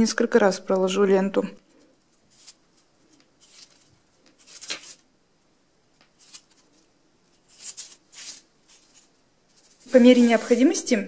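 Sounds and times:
faint tape rustles: 1.6 - 5.1, 5.9 - 11.0.

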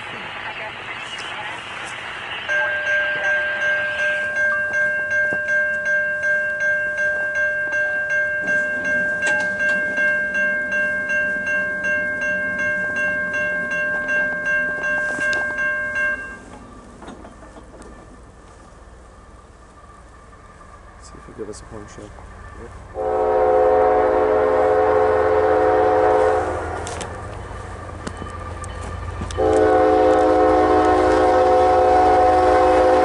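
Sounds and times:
freight train rumble: 0.0 - 33.0
crossing bell ringing: 2.5 - 18.4, 22.9 - 33.0.

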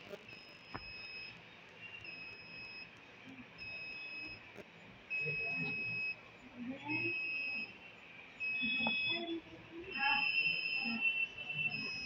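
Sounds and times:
electronic alarm beeping: 0.3 - 1.4, 2.0 - 2.9, 3.6 - 4.5, 5.1 - 6.2, 6.8 - 7.8, 8.4 - 12.0.

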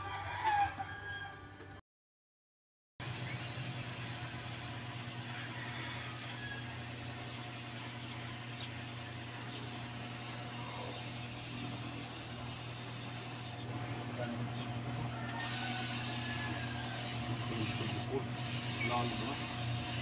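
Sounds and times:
compressed air hissing: 3.0 - 13.6, 15.4 - 20.0
low machine hum: 3.0 - 20.0.

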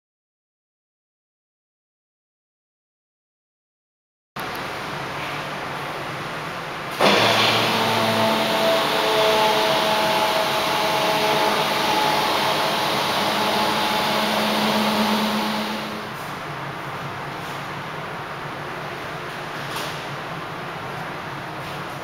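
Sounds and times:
machine hissing with humming tones: 6.9 - 16.5.

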